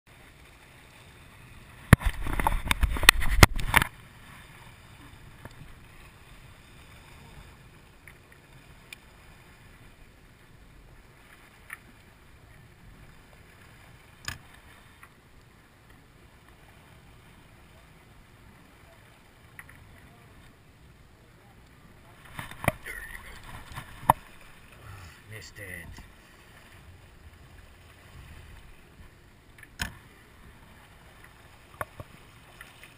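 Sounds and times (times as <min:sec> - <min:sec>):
faint clicks: 0:05.4 - 0:05.6, 0:19.5 - 0:20.0.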